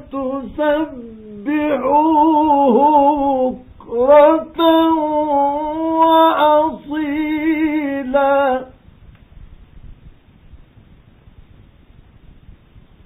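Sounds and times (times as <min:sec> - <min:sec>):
man reciting in long held notes: 0:00.0 - 0:08.8
faint radio recording hiss: 0:00.0 - 0:13.0.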